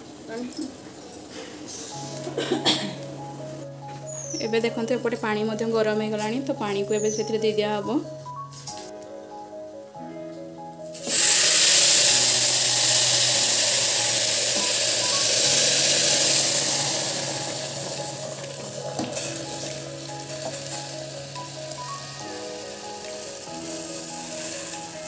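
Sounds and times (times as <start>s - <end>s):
background music: 1.6s - 25.0s
hot water sizzling and hissing: 10.9s - 25.0s.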